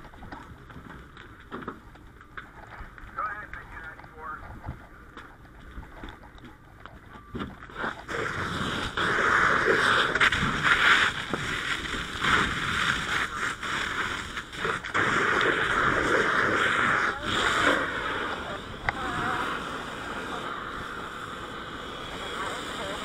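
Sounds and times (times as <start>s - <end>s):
fire hose water rushing: 7.7s - 23.0s.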